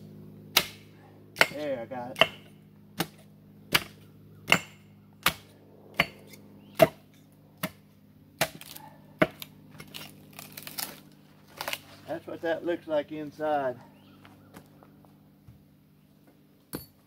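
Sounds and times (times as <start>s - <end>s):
hatchet chopping log: 0.5s - 11.0s.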